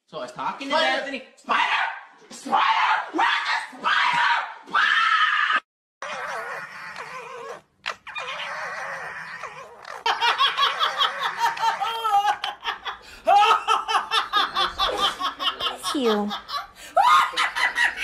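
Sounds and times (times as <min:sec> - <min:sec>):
foxes calling with harsh cries: 0:02.6 - 0:10.1
woman laughing hard: 0:10.1 - 0:18.0.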